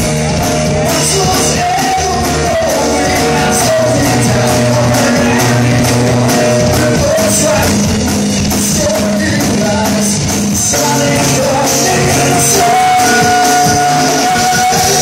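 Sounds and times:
drum kit with cymbals: 0.0 - 15.0
person singing: 0.0 - 15.0.

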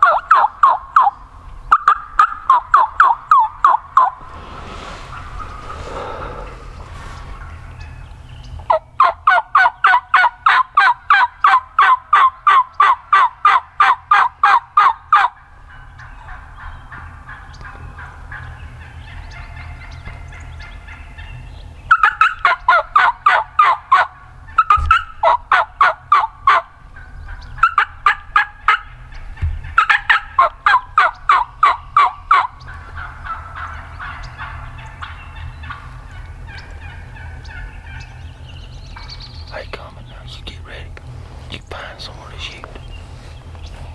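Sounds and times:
turkey yelps: 0.0 - 4.2, 7.4 - 38.3.

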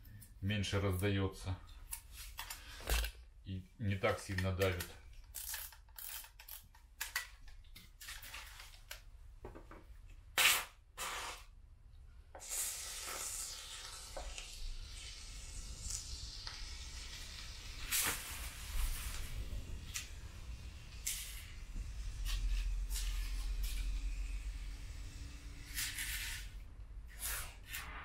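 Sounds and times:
foam hissing from nozzle: 11.0 - 11.5, 12.4 - 27.9.

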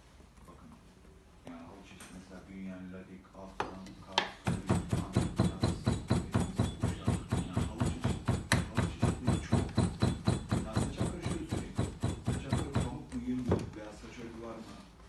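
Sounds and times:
beating comb knocking rhythmically: 4.4 - 13.3.

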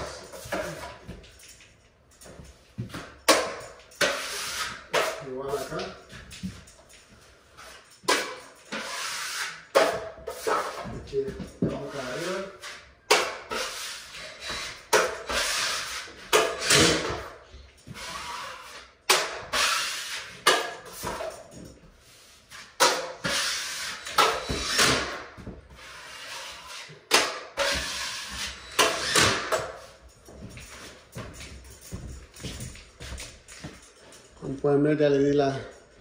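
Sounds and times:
taping knife scraping drywall: 4.0 - 5.8, 7.6 - 11.0, 11.7 - 17.1, 22.2 - 25.1, 25.8 - 29.5.

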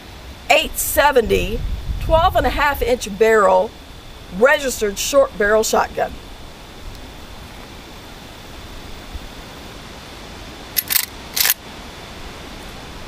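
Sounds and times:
shotgun cracks: 10.8 - 11.6.

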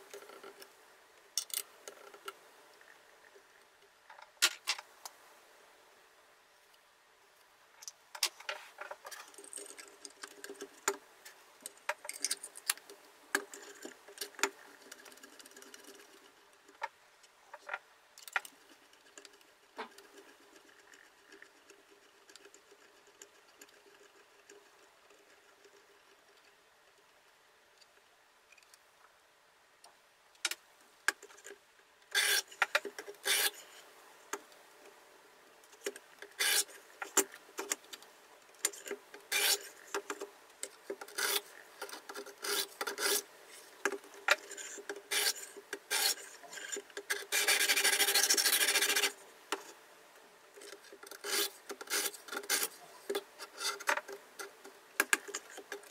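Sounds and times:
sharpening plates rubbing on blade: 33.2 - 33.7, 36.4 - 36.7, 39.3 - 39.7, 44.6 - 49.2.

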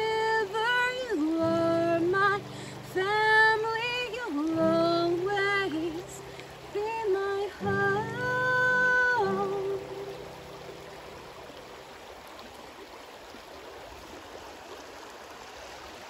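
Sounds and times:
woman singing wordless notes: 0.0 - 10.4
acoustic guitar: 0.0 - 11.4.

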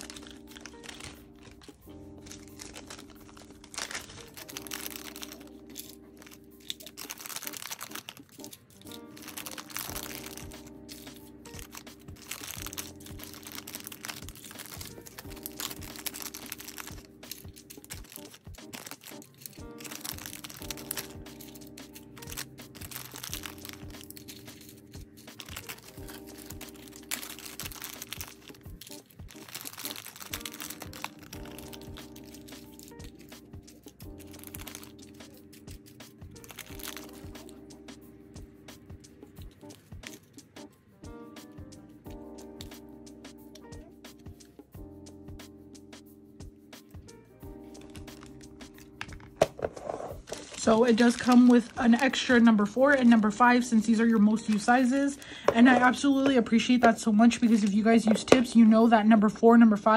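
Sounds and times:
plastic packaging crinkling: 0.0 - 37.6, 47.6 - 56.4
background music with steady beat: 0.0 - 59.9.

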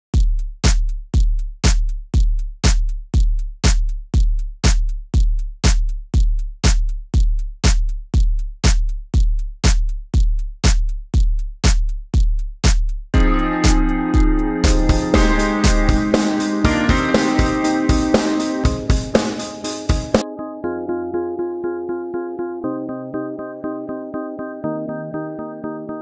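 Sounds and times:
electronic drum beat: 0.2 - 20.2.

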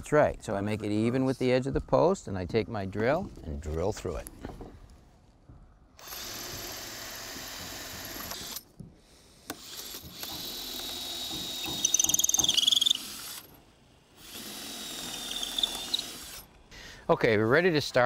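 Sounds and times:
cordless drill boring wood: 6.0 - 8.6, 9.4 - 16.5
drill bit squealing in wood: 9.6 - 13.5, 14.2 - 16.5.

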